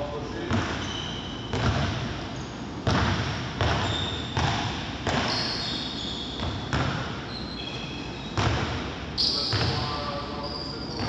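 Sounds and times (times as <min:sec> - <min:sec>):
balls bouncing on wooden floor: 0:02.9 - 0:05.4.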